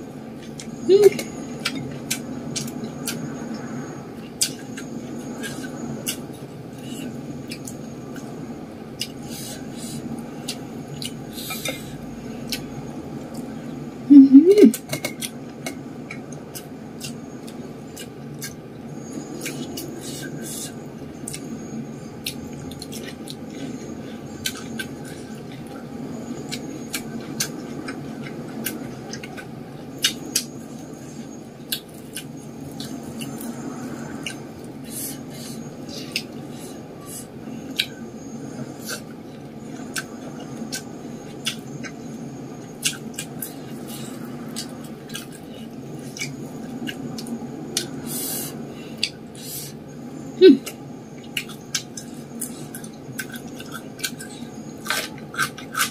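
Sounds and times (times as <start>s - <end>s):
steady low hum: 0.0s - 55.9s
chewing and lip smacks: 38.8s - 42.0s, 42.8s - 48.0s, 50.6s - 55.9s.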